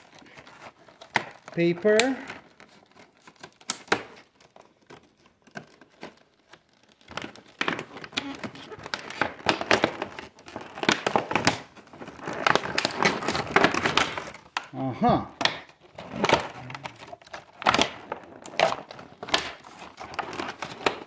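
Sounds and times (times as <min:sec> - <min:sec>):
plastic packaging crinkling: 0:00.0 - 0:14.8, 0:15.6 - 0:21.0.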